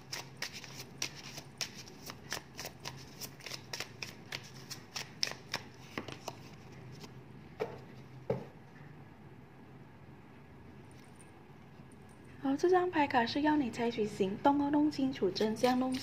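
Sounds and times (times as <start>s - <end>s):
cards being shuffled: 0.0s - 7.1s.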